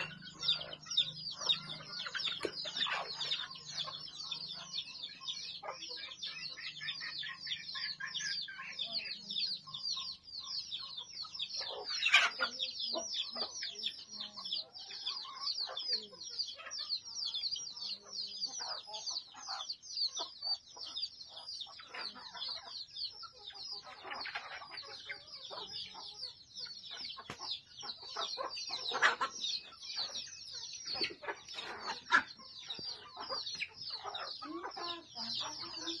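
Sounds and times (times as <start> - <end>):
chickens clucking: 0.0 - 36.0
dense high-pitched chirping: 0.0 - 36.0.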